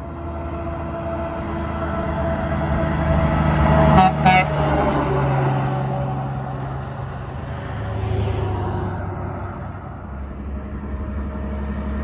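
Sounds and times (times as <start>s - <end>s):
diesel truck passing by: 0.0s - 12.0s.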